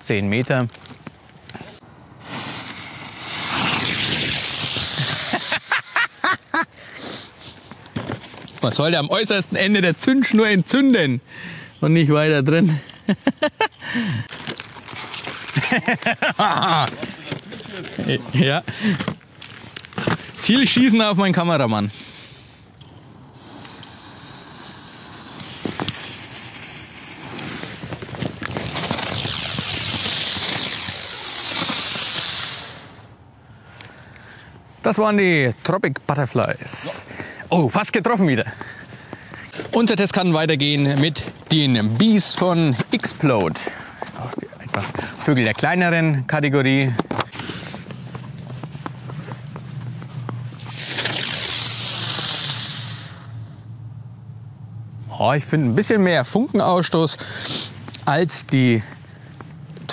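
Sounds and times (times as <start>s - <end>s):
firework hissing: 1.8s - 6.1s, 21.9s - 33.2s, 47.3s - 48.0s, 50.5s - 53.7s, 57.4s - 57.8s.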